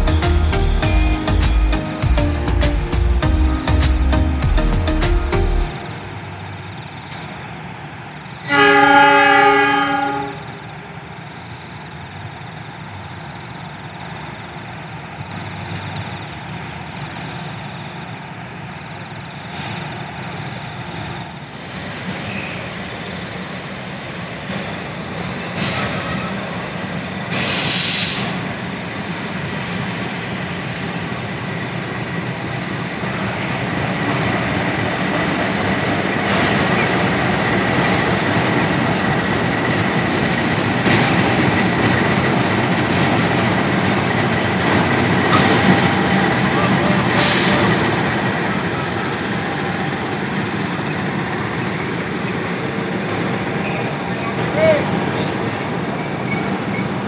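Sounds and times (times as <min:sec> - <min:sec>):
train rumbling: 0:00.0 - 0:57.0
train horn: 0:08.4 - 0:10.7, 0:45.2 - 0:47.9
short hissing bursts: 0:27.3 - 0:28.5.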